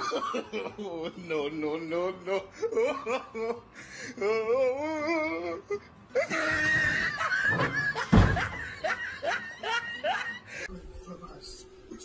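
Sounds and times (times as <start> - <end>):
people shrieking and laughing: 6.1 - 10.7
wardrobe door banging open: 6.8 - 8.7.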